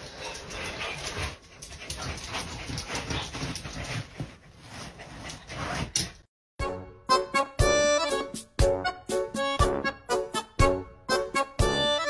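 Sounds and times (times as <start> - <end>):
music: 6.6 - 12.0.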